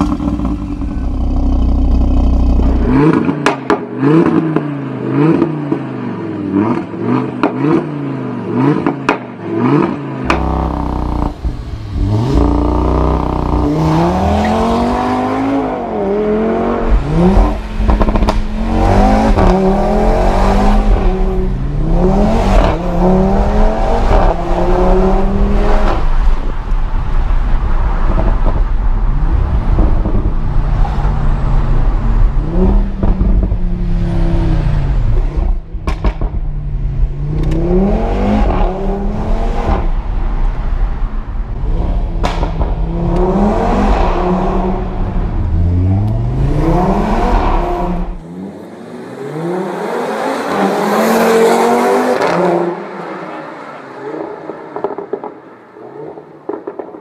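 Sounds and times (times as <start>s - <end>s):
exhaust cracks: 0.0s - 3.8s, 16.8s - 24.4s, 34.9s - 37.8s, 39.7s - 48.3s
car engine accelerating: 9.6s - 52.9s.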